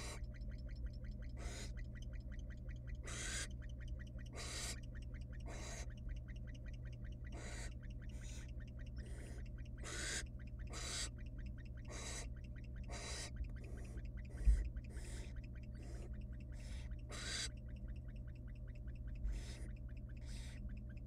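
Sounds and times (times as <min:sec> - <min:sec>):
owl chicks hissing begging calls: 0:00.0 - 0:21.0.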